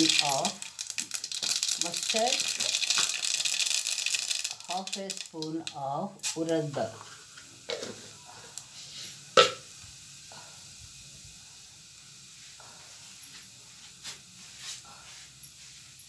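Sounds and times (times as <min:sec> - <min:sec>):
seeds popping: 0:00.0 - 0:06.6
seeds sizzling in hot oil: 0:00.0 - 0:16.0.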